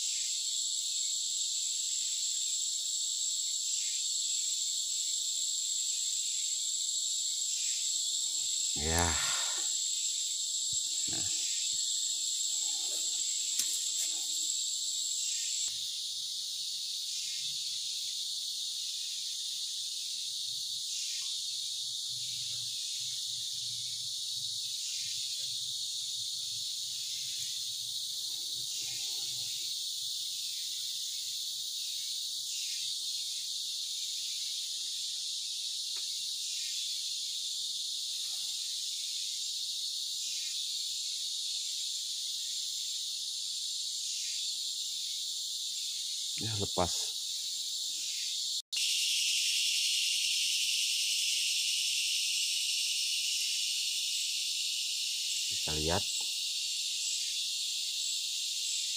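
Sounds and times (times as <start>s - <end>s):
insects buzzing: 0.0s - 58.9s
shrill high insect note: 48.8s - 54.2s.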